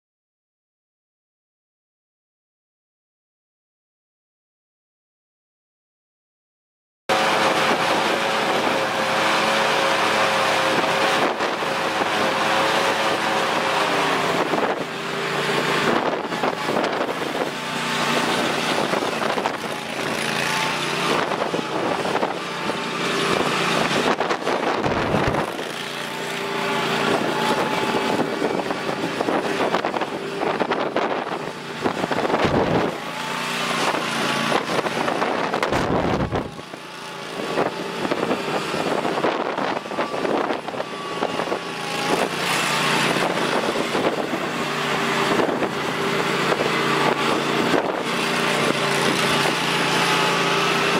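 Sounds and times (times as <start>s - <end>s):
lawn mower engine running: 7.1s - 50.9s.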